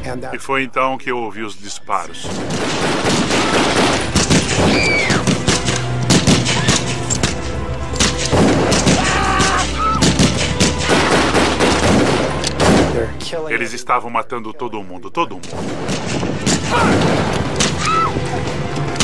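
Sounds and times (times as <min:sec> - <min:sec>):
rapid gunfire: 0:02.2 - 0:07.4, 0:08.0 - 0:13.0, 0:15.4 - 0:17.8
dramatic background music: 0:02.2 - 0:14.3, 0:15.3 - 0:19.0.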